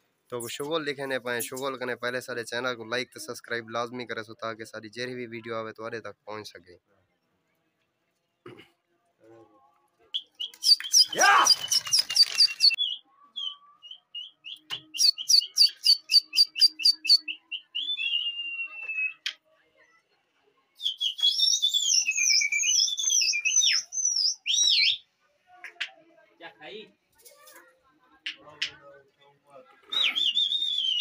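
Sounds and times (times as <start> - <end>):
bird-like whistled chirps: 10.2 - 19.3, 20.8 - 25.0, 29.9 - 31.0.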